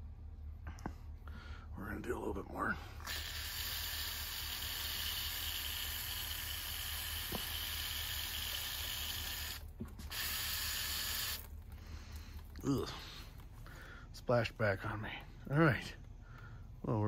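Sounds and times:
aerosol spray hissing: 0:03.0 - 0:11.4.

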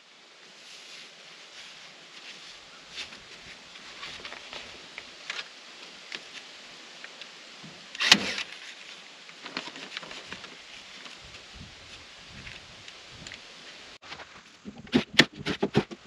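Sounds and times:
housewrap crinkling and clicking: 0:03.9 - 0:05.5, 0:08.0 - 0:11.2.

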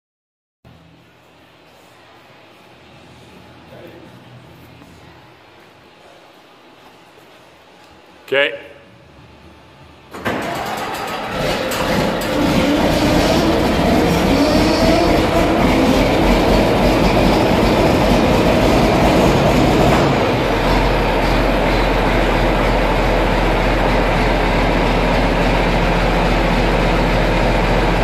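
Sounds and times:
tractor diesel engine running: 0:10.2 - 0:28.0.

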